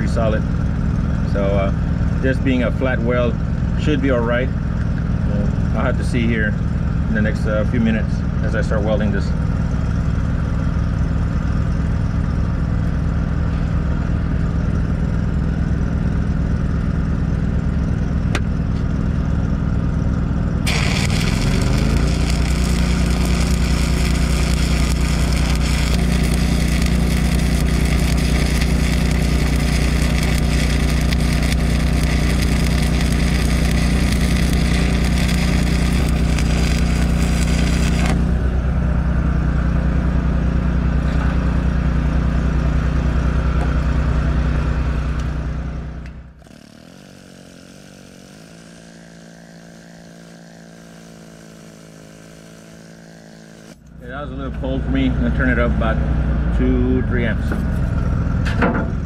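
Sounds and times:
welding machine engine running: 0.0 - 59.0
welding arc crackling and hissing: 20.6 - 38.6, 46.4 - 53.8.

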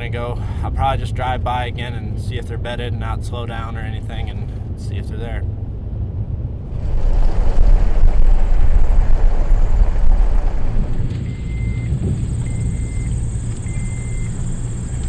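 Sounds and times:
road rumble and wind noise: 0.0 - 15.0.

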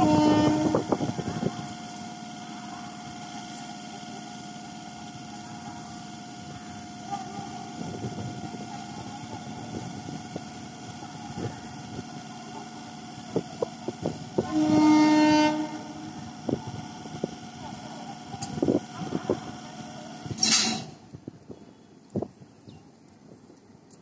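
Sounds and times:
train horn blast: 0.0 - 1.0, 14.4 - 16.2.

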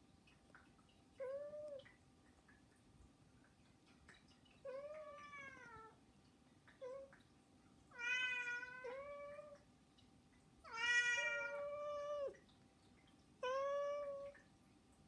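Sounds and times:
cat meowing: 8.0 - 9.6, 10.7 - 12.4.

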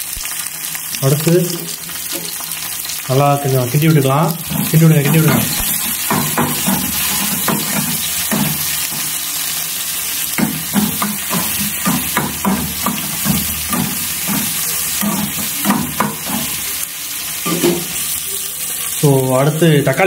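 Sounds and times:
onions sizzling in hot oil: 0.0 - 20.0
metal spoon scraping a pan: 3.9 - 9.2, 10.4 - 16.8, 17.4 - 18.2.

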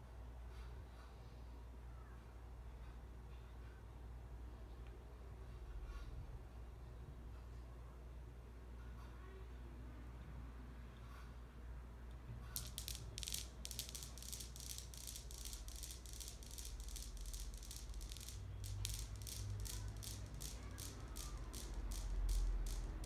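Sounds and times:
rapid even rattling: 12.6 - 23.0.

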